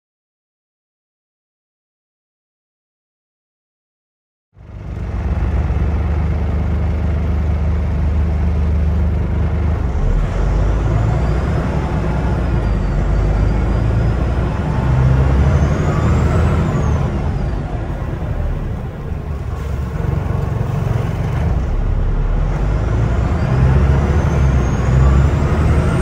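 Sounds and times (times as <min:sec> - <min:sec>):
bus diesel engine droning: 0:04.6 - 0:26.0
turbocharger whistling whine: 0:09.5 - 0:19.5, 0:21.2 - 0:26.0.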